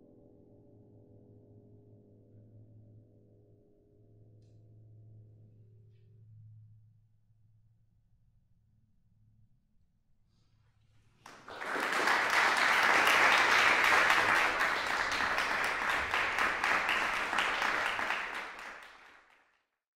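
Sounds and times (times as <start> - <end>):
audience applauding: 11.3 - 19.5.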